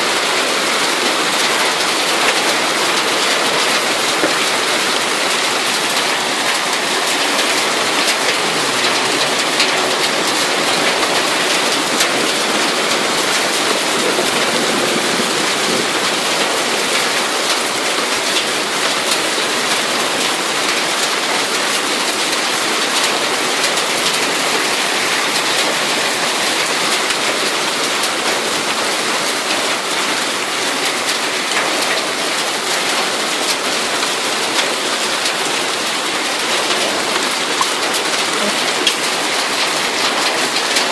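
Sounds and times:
hailstones pelting down: 0.0 - 40.9.

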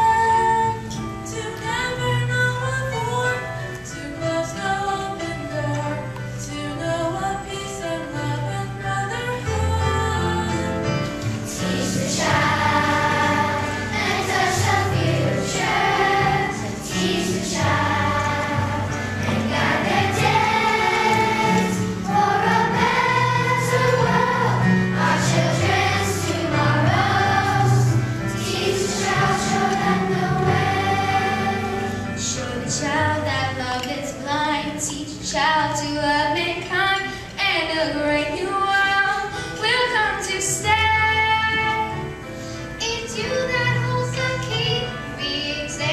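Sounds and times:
instrumental accompaniment with bass: 8.3 - 34.6
children's choir singing: 8.6 - 33.9.

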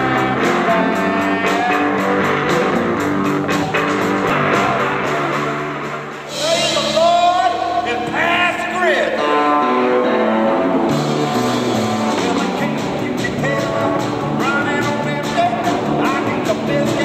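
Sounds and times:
drum kit: 0.0 - 17.0
electric guitar: 0.0 - 17.0.

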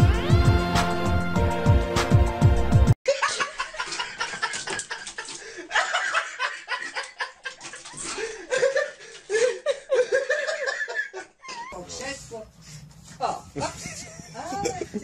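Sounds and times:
background music: 0.0 - 3.0
people laughing and chuckling: 3.1 - 11.8, 13.7 - 15.0.

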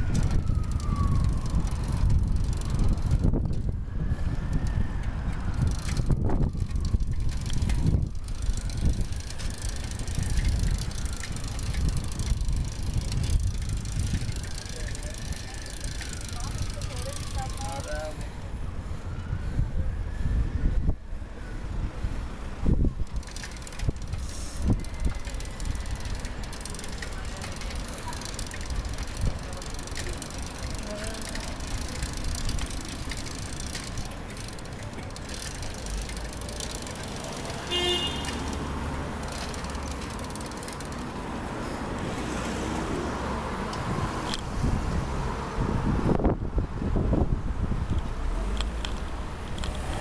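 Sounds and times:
wind buffeting microphone: 0.0 - 17.6, 18.3 - 36.8, 43.4 - 50.0
bicycle tyre and road noise: 0.0 - 50.0
small rattles and clicks: 5.3 - 17.9, 23.0 - 37.6, 39.2 - 41.1.

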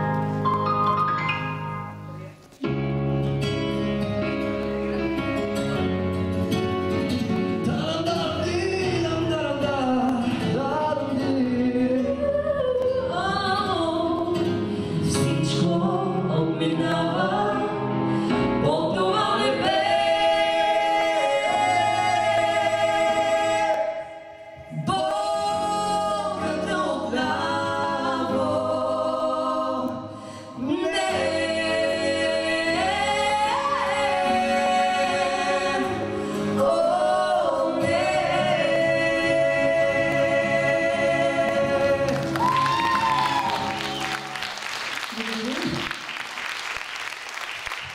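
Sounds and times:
instrumental accompaniment: 0.0 - 7.7
man and woman singing duet: 7.6 - 44.3.

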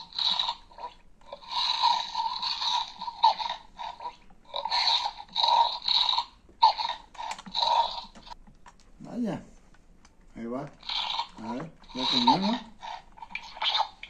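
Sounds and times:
electronic dinosaur toy sounds: 10.8 - 14.0.

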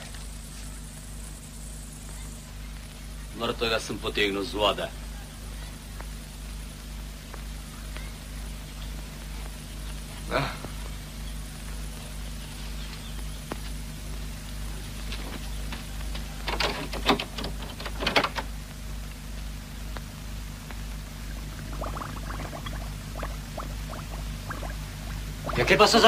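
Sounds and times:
film soundtrack hum and hiss: 0.0 - 26.0
faint scattered clicks: 7.2 - 25.3.

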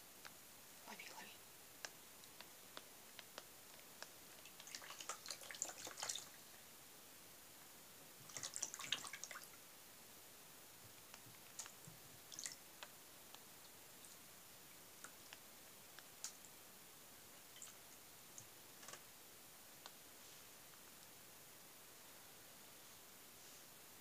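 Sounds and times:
water splashing in tub: 4.4 - 6.4, 8.2 - 9.6.

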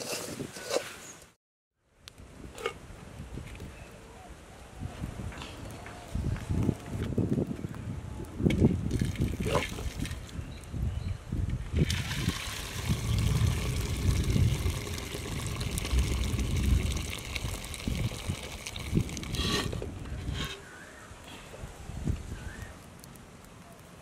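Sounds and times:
water pouring and splashing: 8.7 - 10.4, 11.7 - 20.0.

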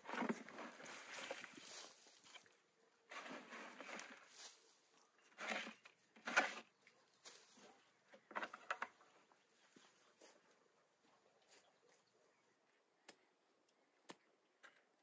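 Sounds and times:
rustling scraping in soil: 0.0 - 2.5, 3.1 - 7.8.

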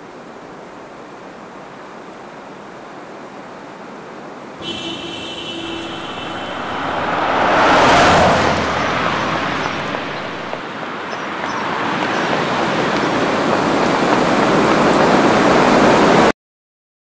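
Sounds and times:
broad rushing noise: 4.6 - 11.1
car passing by: 4.6 - 16.1.

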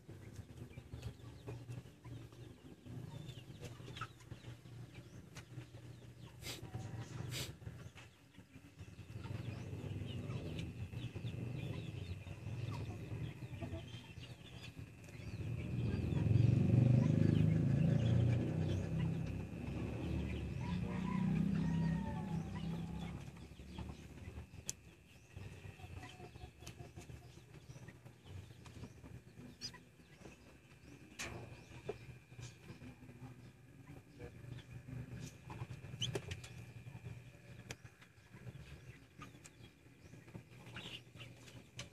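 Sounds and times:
low rumbling noise: 0.0 - 26.5
chick peeping: 0.0 - 41.9.

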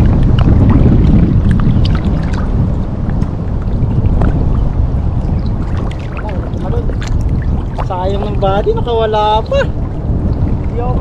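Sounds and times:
river water sloshing: 0.0 - 11.0
water splashes and drips: 0.0 - 11.0.

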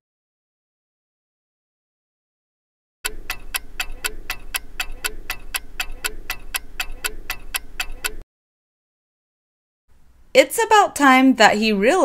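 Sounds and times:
clock ticking: 3.0 - 8.2.

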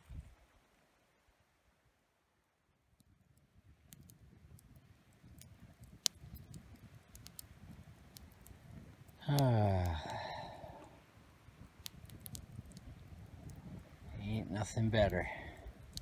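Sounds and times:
small clicks: 3.9 - 7.5
man's short vocal sound: 9.2 - 10.2.

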